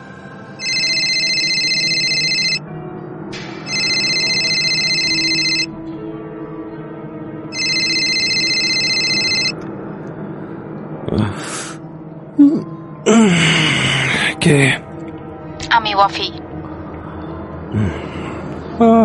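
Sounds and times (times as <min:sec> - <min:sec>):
soft background music: 0:00.0 - 0:19.0
telephone ringing: 0:00.6 - 0:02.6, 0:03.7 - 0:05.7, 0:07.5 - 0:09.6.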